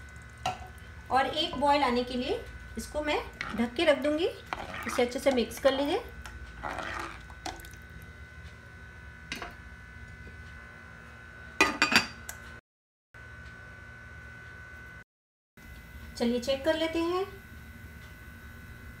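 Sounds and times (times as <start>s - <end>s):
ladle stirring curry in pot: 3.3s - 5.8s, 6.6s - 7.2s.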